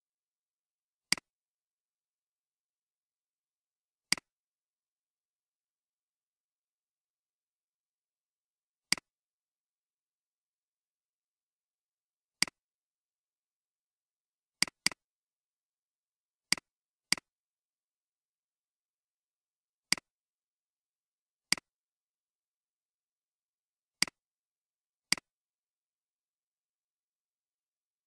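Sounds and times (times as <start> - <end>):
computer mouse clicks: 1.1 - 1.3, 4.1 - 4.3, 8.9 - 9.1, 14.6 - 15.0, 16.5 - 17.3, 19.9 - 20.1, 21.5 - 21.7, 25.1 - 25.3.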